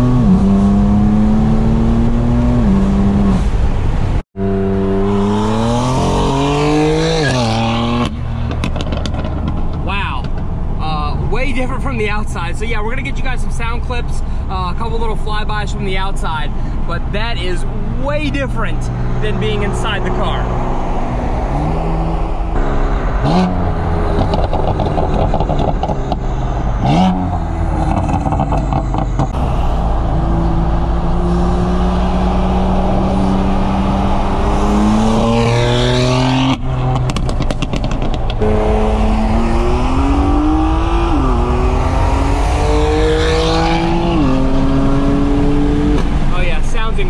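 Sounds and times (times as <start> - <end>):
car engine accelerating hard: 0.0 - 3.8, 4.4 - 9.6, 18.8 - 46.8
car engine revving with crackles: 0.0 - 14.0, 17.0 - 47.0.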